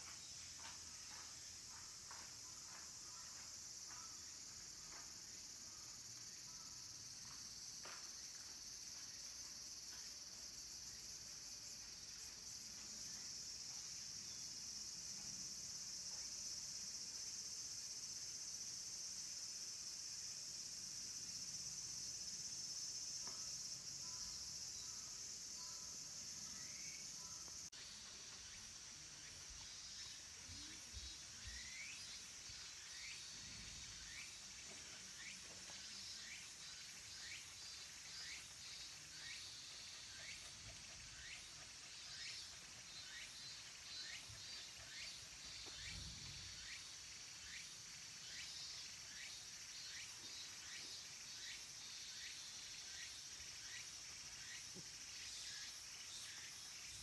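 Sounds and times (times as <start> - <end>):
cicadas chorus: 0.0 - 57.0
cicada rising call: 20.8 - 57.0.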